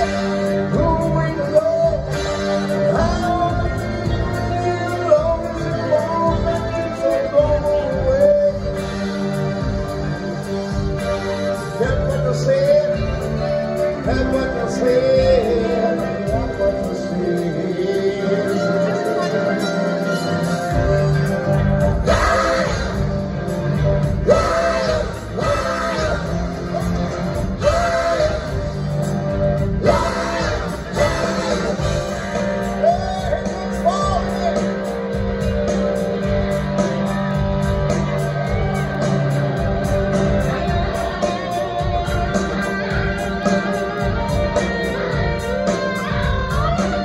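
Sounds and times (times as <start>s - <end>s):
man singing: 0.0s - 9.2s, 11.7s - 20.5s, 29.8s - 34.8s
bass: 0.0s - 47.0s
drums: 0.0s - 47.0s
electric guitars: 0.0s - 47.0s
keyboard: 0.0s - 47.0s.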